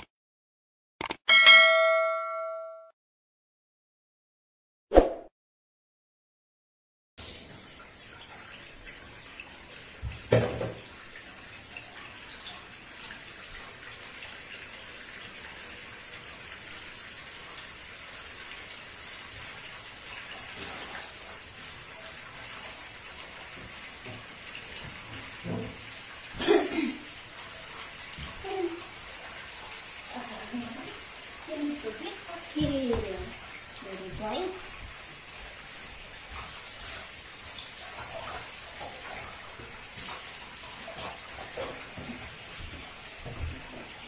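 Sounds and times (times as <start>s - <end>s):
tap water splashing into tub: 8.2s - 16.8s, 18.4s - 29.8s, 32.4s - 44.0s
knocks and thumps: 10.0s - 10.8s.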